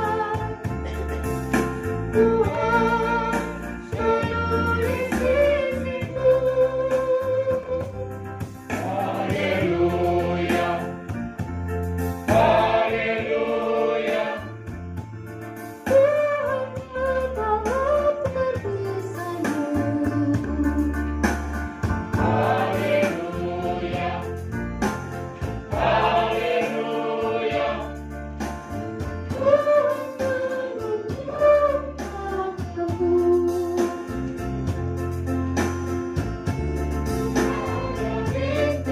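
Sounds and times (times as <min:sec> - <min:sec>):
mixed choir singing: 0:00.0 - 0:00.6, 0:02.2 - 0:06.7, 0:08.7 - 0:11.0, 0:12.3 - 0:14.6, 0:22.2 - 0:24.5, 0:25.7 - 0:28.0, 0:29.3 - 0:32.6, 0:37.3 - 0:38.9.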